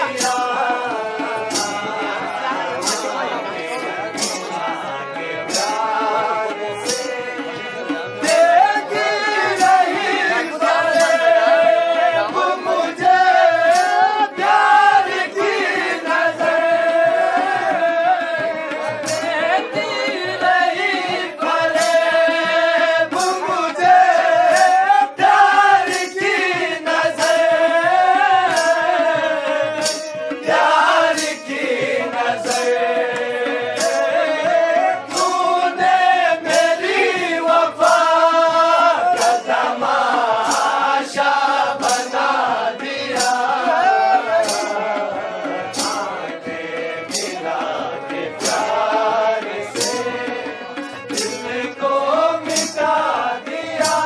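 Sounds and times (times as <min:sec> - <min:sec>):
man singing: 0:00.0 - 0:54.0.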